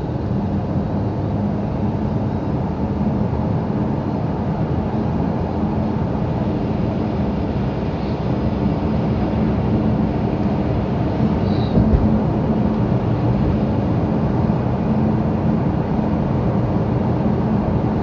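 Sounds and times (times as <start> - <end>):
low thump: 11.8 - 12.2.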